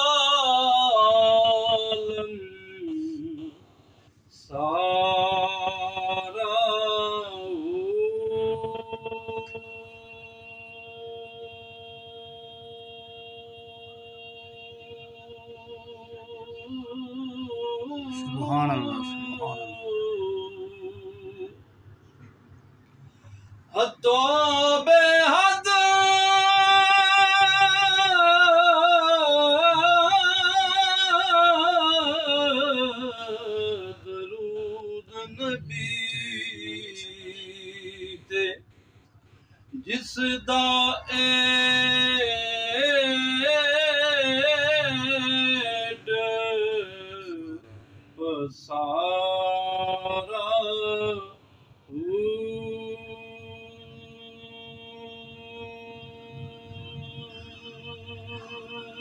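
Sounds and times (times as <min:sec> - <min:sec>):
man singing unaccompanied: 0:00.0 - 0:03.6, 0:04.3 - 0:21.6, 0:23.7 - 0:38.7, 0:39.7 - 0:59.0
man singing long note: 0:04.4 - 0:21.5.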